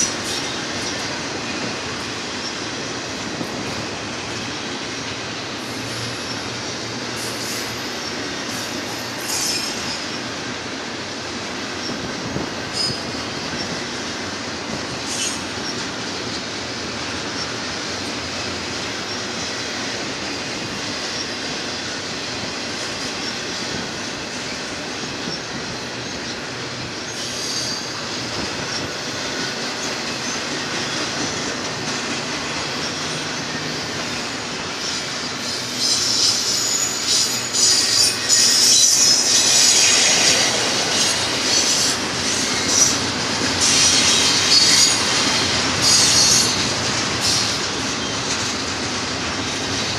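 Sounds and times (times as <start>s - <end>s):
train wheels rumbling on rail: 0.0s - 49.9s
high-pitched wheel squeals: 8.6s - 10.2s, 27.1s - 28.1s, 32.7s - 43.0s, 43.6s - 45.1s, 45.8s - 46.6s.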